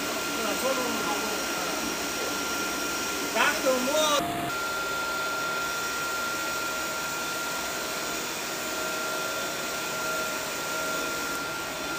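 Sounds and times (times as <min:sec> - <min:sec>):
thin high whine: 0:03.6 - 0:07.5.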